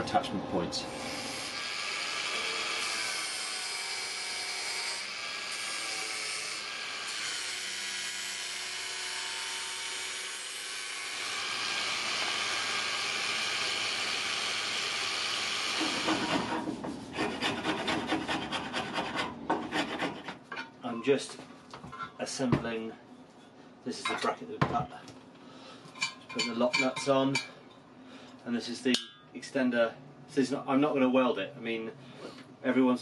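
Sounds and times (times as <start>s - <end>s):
rasp scraping wood: 15.8s - 20.5s.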